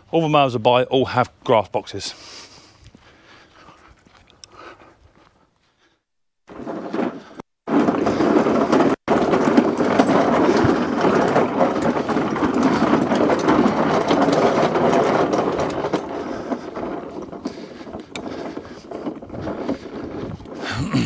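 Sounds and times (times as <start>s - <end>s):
push lawn mower rattling: 6.5s - 21.0s.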